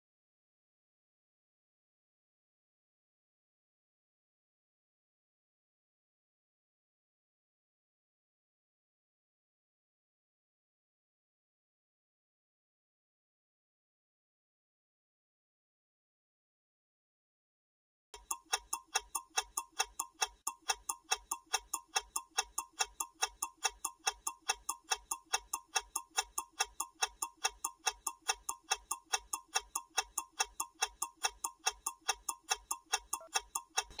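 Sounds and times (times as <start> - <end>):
clock ticking fast: 18.2 - 34.0.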